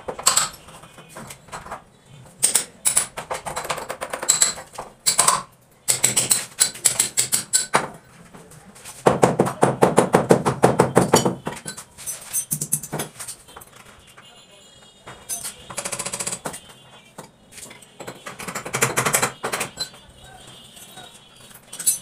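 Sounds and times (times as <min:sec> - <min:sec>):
scattered knocks: 0:09.0 - 0:11.7, 0:18.0 - 0:20.1.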